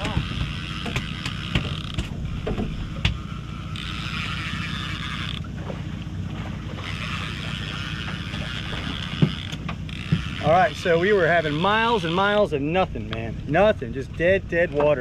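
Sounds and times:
fishing reel clicks: 0:00.0 - 0:05.5, 0:06.8 - 0:12.4
outboard motor humming: 0:00.0 - 0:15.0.

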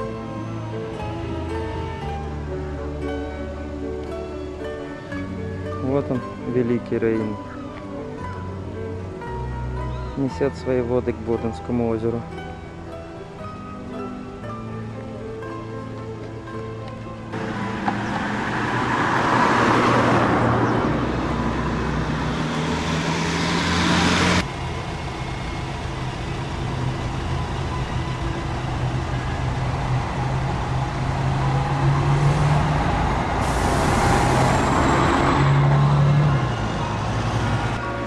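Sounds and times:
vehicles passing: 0:00.0 - 0:38.0
low engine hum: 0:15.0 - 0:38.0.

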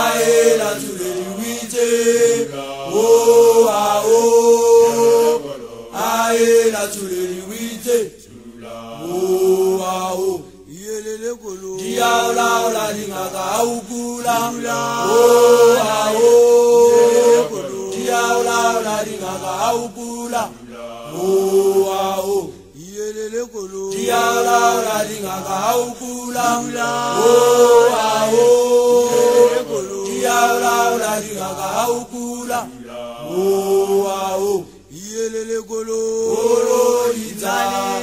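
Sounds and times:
group of voices chanting: 0:00.0 - 0:10.4, 0:11.8 - 0:22.6, 0:23.9 - 0:34.7, 0:36.2 - 0:38.0.

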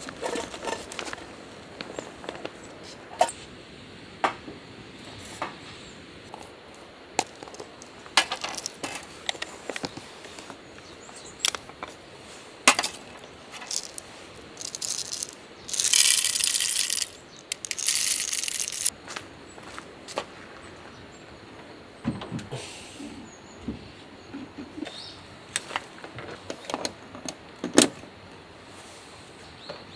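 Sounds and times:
camp gear clicks and knocks: 0:00.0 - 0:03.4, 0:06.3 - 0:10.6, 0:11.4 - 0:12.0, 0:12.7 - 0:18.9
coffee beans rattling from jar: 0:08.2 - 0:09.2, 0:12.8 - 0:18.9.

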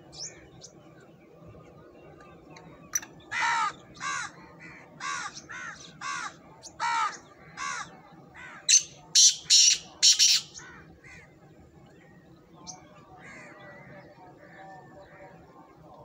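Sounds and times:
francolin calling: 0:02.7 - 0:11.3.

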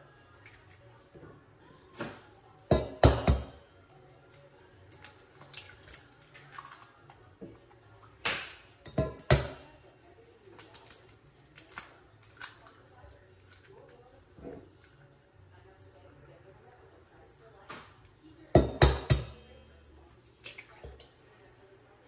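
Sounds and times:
eggs cracking on metal bowl: 0:00.4 - 0:00.9, 0:01.9 - 0:15.0, 0:17.6 - 0:19.5, 0:20.3 - 0:21.2.

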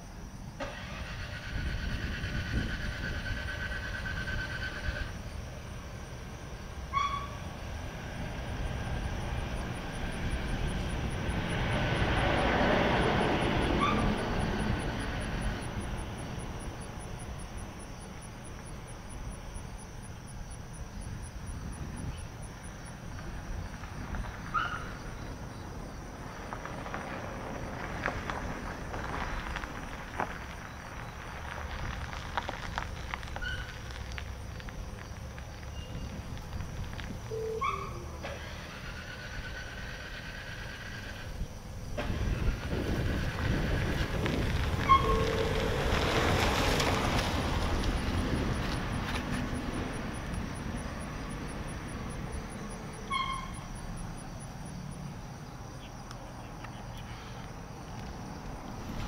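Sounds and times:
passing vehicle: 0:00.0 - 0:59.0.

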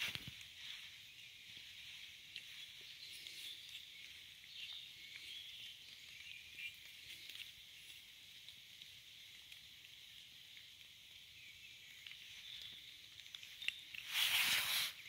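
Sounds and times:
metal tool scraping soil: 0:14.0 - 0:15.0.

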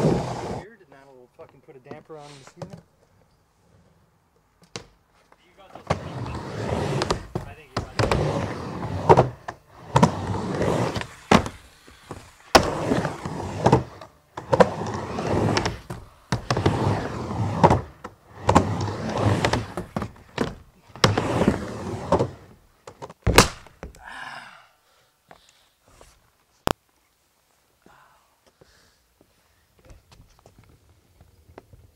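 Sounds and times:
skateboard wheels rolling on wood: 0:00.0 - 0:00.7, 0:03.7 - 0:24.0, 0:29.2 - 0:31.9.

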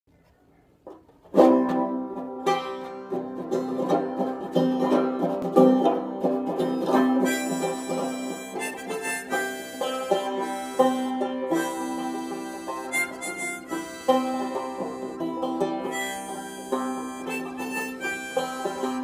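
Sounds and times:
banjo strumming folk tune: 0:00.8 - 0:19.0
harmonica: 0:06.5 - 0:19.0.

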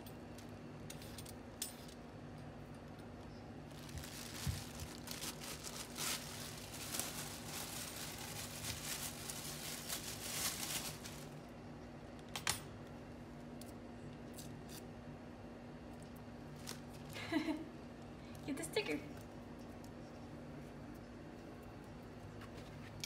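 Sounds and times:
faint steady hum: 0:00.0 - 0:23.0
plastic bag crinkling: 0:03.7 - 0:11.5.

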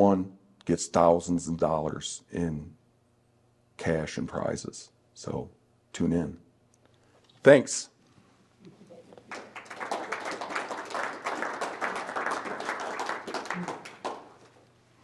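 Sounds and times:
audience applause: 0:09.3 - 0:14.5.

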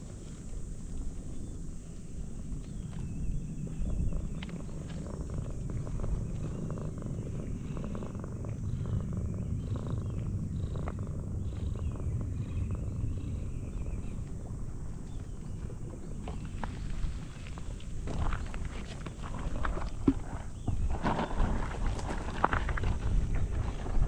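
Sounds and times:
cat purring: 0:02.3 - 0:20.7.

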